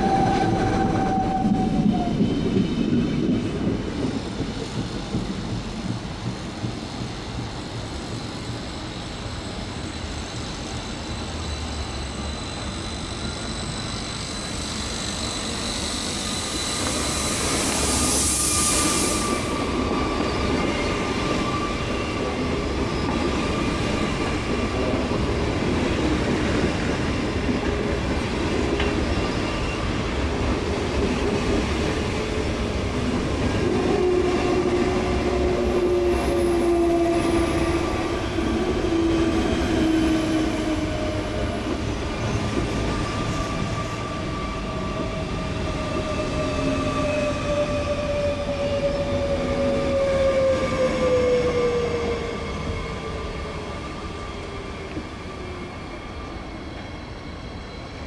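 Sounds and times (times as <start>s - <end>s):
train rolling slowly: 0.0s - 58.0s
wheel and brake squeals: 9.9s - 22.2s, 28.8s - 30.0s.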